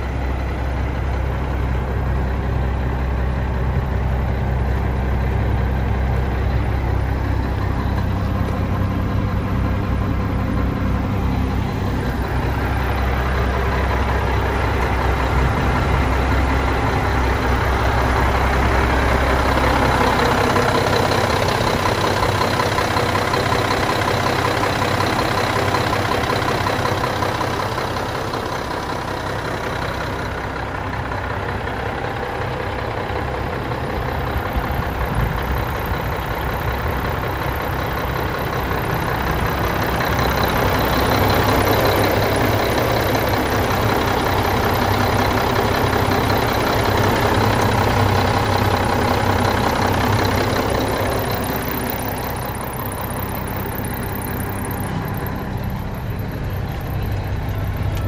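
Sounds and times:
diesel truck engine idling: 0:00.0 - 0:58.0.

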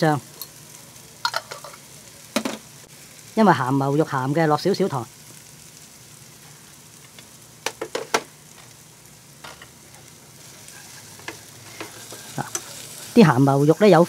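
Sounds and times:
food sizzling in frying pan: 0:00.0 - 0:14.0
wooden utensils clicking on pan: 0:07.1 - 0:08.3, 0:11.2 - 0:12.8.

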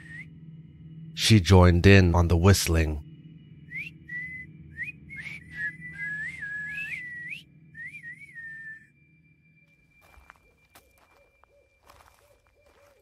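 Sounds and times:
person whistling a tune: 0:00.0 - 0:00.3, 0:03.7 - 0:08.9
low steady drone: 0:00.0 - 0:10.0.

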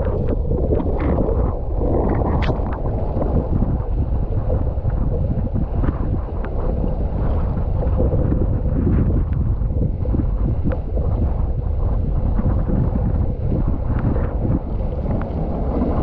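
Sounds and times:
water rushing and splashing: 0:00.0 - 0:09.2
wind buffeting microphone: 0:00.0 - 0:16.0.

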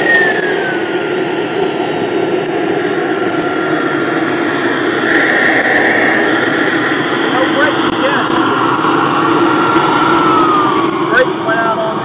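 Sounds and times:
gas turbine rushing: 0:00.0 - 0:12.0
higher whine: 0:00.0 - 0:12.0
thin turbine whine: 0:00.0 - 0:12.0.

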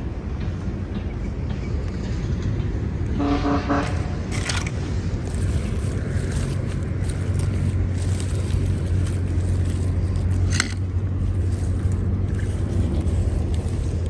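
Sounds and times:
car engine running: 0:03.8 - 0:14.0.

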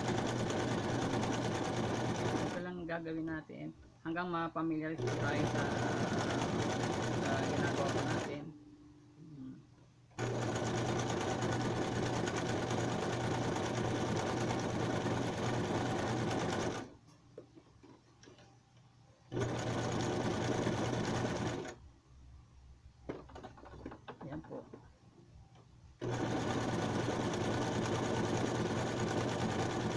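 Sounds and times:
sewing machine running: 0:00.0 - 0:02.6, 0:05.0 - 0:08.4, 0:10.2 - 0:16.9, 0:19.3 - 0:21.8, 0:26.0 - 0:29.9.

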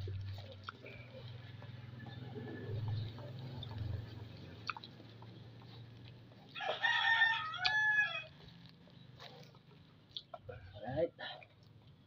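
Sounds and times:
rooster crowing: 0:06.6 - 0:08.5.

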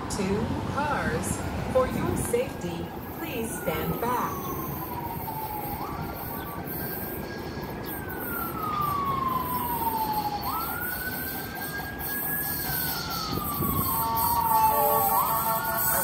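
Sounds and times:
siren wailing: 0:02.8 - 0:16.0.

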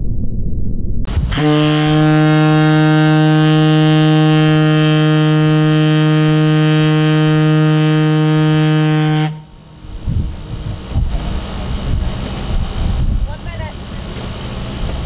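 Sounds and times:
long low horn blast: 0:01.1 - 0:13.0.

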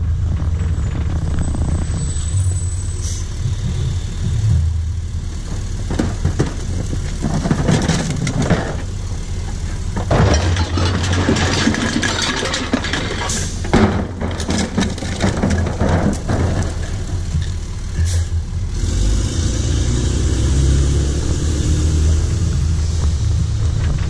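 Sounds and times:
garbage truck engine rumbling: 0:00.0 - 0:24.0
recyclables clattering into hopper: 0:10.0 - 0:17.2.

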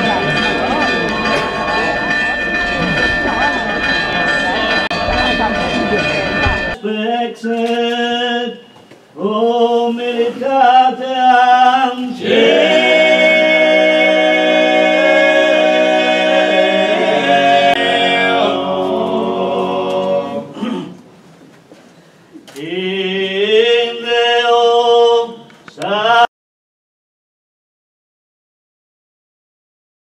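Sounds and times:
choir singing unaccompanied: 0:09.2 - 0:20.6, 0:22.6 - 0:26.3.

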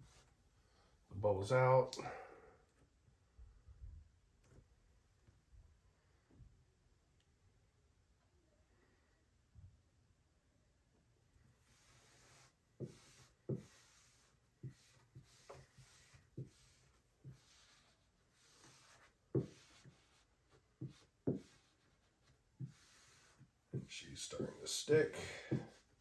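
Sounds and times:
squeegee swishing on vinyl: 0:11.6 - 0:20.2.

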